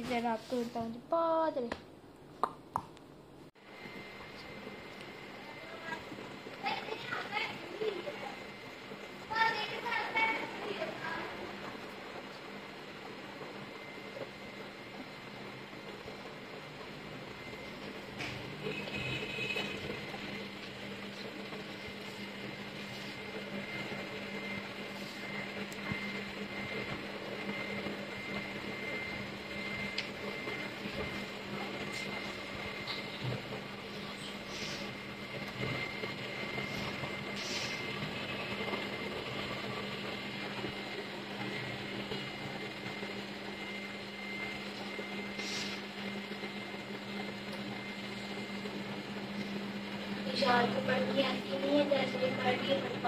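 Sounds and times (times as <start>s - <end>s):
air conditioner humming: 0.0s - 53.0s.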